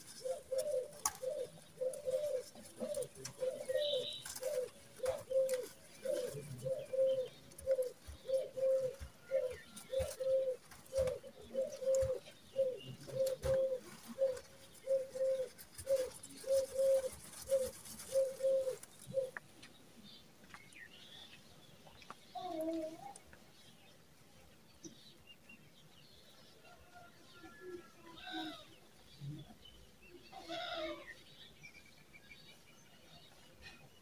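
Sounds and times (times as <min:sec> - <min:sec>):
dove cooing: 0:00.0 - 0:19.4.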